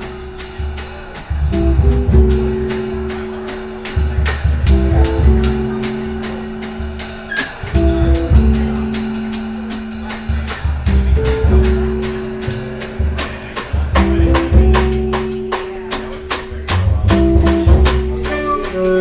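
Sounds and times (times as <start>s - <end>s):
drums with cymbal strokes: 0.0s - 19.0s
upright bass: 0.0s - 19.0s
clarinet: 18.0s - 19.0s
alto saxophone: 18.2s - 19.0s.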